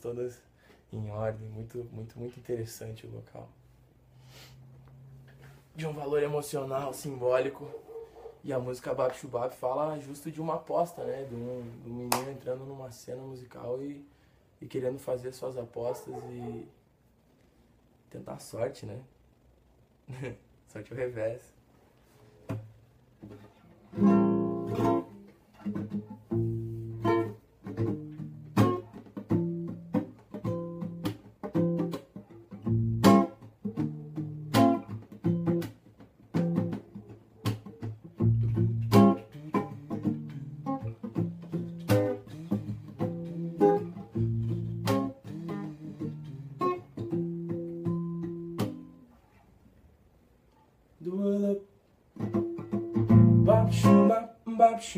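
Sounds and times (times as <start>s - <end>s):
classical guitar chords: 22.5s - 49.1s, 52.1s - 54.9s.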